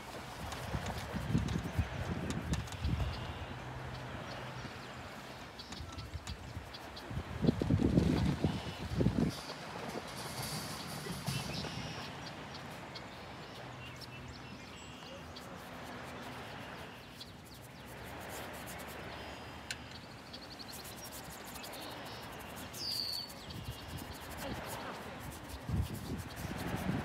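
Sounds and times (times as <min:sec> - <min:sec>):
wind rumbling on microphone: 0:00.0 - 0:27.0
bird chirps: 0:10.7 - 0:15.6, 0:19.1 - 0:24.4.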